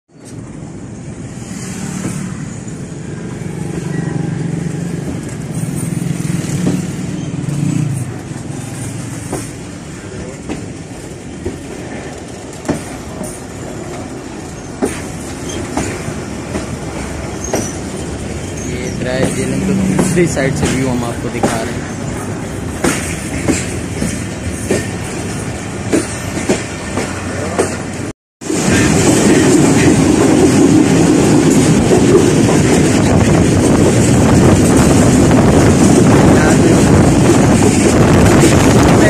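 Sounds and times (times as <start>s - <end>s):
train wheels rumbling on track: 0.1s - 39.0s
wheels clicking over rail joints: 4.7s - 39.0s.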